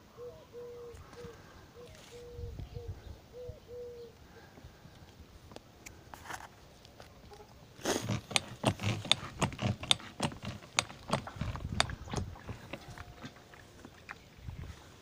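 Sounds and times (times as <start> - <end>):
sharp clicks and knocks: 8.0 - 12.9.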